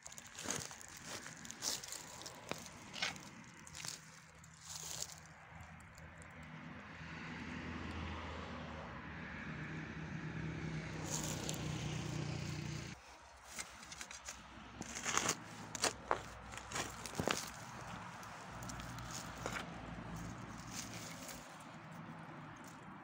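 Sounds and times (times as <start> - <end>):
steady engine hum: 0.1 - 23.0
hoe chopping stony soil: 13.5 - 18.0.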